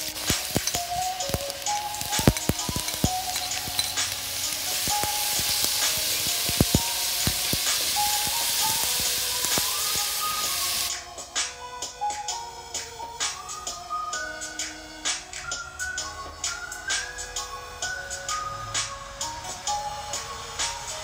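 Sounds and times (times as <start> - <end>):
vegetables sizzling in oil: 0.0 - 11.0.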